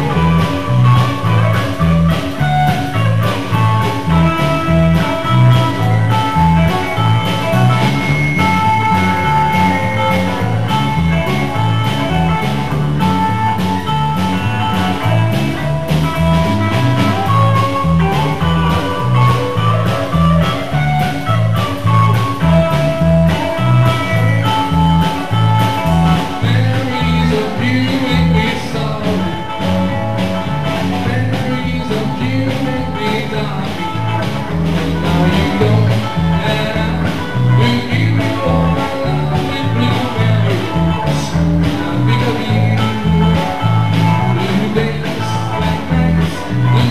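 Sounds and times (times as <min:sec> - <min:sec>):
electric bass: 0:00.0 - 0:46.9
electric guitar lead lines: 0:00.0 - 0:46.9
steady drum beat: 0:00.0 - 0:46.9
man singing: 0:23.4 - 0:46.9.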